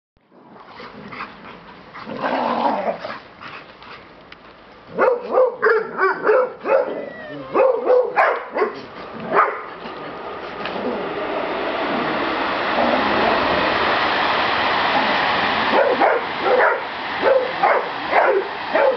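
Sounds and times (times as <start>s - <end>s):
dogs barking and whining: 4.9s - 11.2s, 15.7s - 18.9s
dogs yipping: 5.0s - 9.8s, 15.7s - 18.9s.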